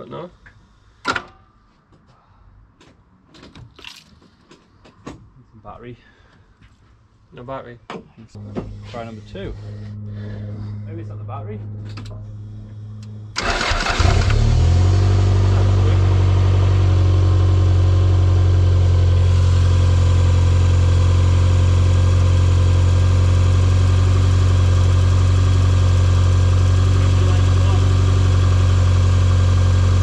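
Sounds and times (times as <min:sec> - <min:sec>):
car engine cranking and idling: 0:08.4 - 0:30.0.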